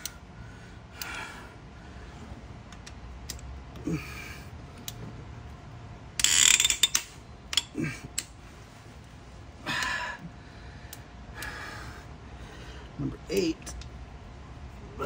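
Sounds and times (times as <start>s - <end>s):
ratchet wrench clicking: 6.2s - 8.3s.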